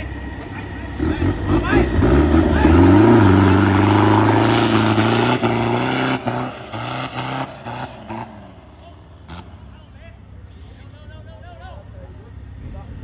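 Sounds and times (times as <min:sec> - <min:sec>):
diesel truck engine revving: 0:00.0 - 0:10.1.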